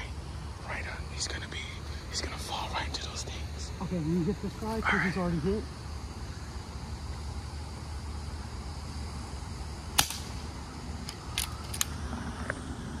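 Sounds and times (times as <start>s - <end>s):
air rifle shot: 9.9s - 10.5s
rifle action clicks: 11.0s - 11.9s.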